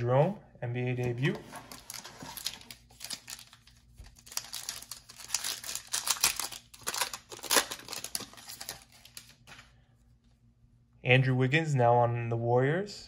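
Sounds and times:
foil wrapper crinkling and tearing: 1.7s - 9.7s.

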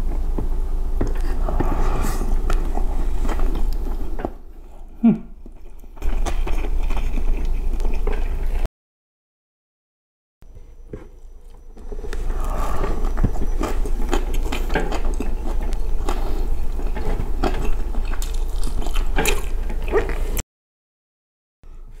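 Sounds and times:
wet chewing and mouth smacking: 2.4s - 8.6s, 11.0s - 20.4s.

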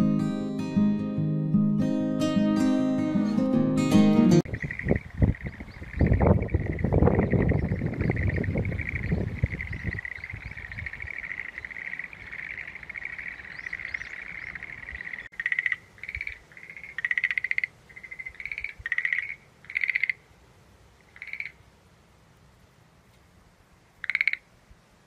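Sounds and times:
frogs calling: 4.5s - 20.3s, 21.0s - 21.6s, 24.0s - 24.5s.

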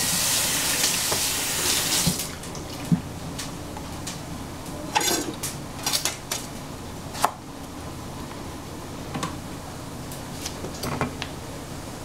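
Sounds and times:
steady low hum: 2.2s - 12.0s
kitchen utensils and dishes clinking: 4.9s - 6.2s.

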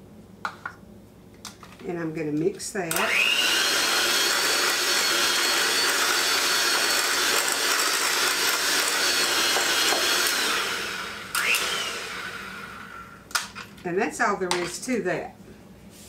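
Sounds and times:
electric hand mixer running: 2.9s - 13.3s.

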